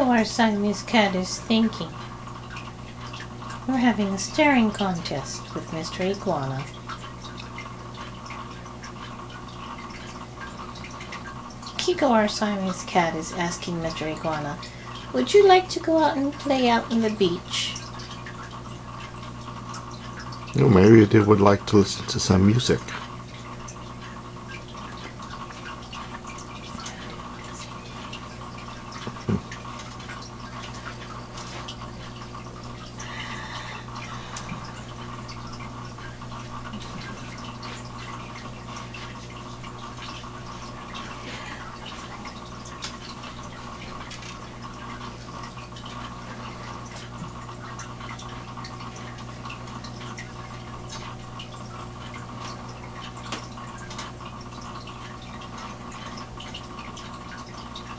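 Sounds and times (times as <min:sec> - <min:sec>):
filter low hum: 0:00.0 - 0:57.9
water trickling and dripping: 0:00.0 - 0:57.9.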